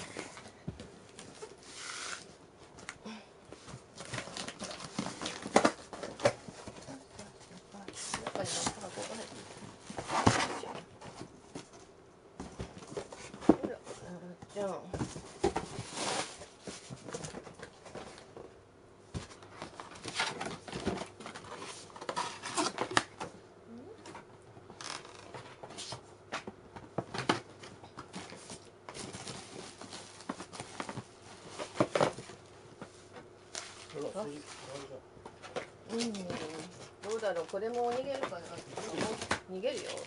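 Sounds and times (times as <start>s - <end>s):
cardboard packaging rustling: 3.5s - 11.8s, 26.9s - 40.0s.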